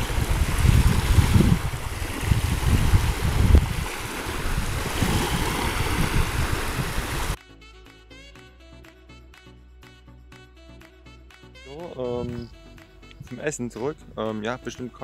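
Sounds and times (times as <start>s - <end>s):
small waves lapping: 0.0s - 7.4s
wind buffeting microphone: 0.0s - 7.4s
quiet music: 7.4s - 15.0s.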